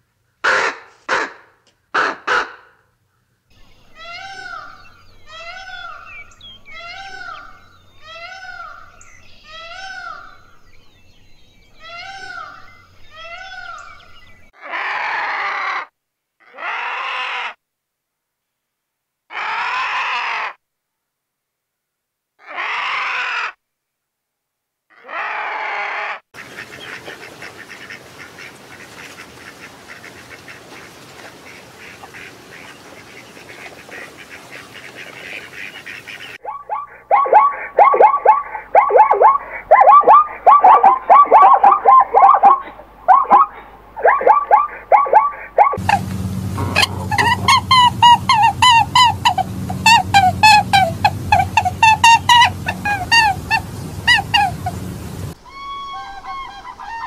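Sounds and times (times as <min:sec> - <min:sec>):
loud bird calls: 0:03.5 - 0:10.9, 0:26.4 - 0:57.0
ducks chattering: 0:26.4 - 0:57.0
short repeated bird calls: 0:31.4 - 0:46.0.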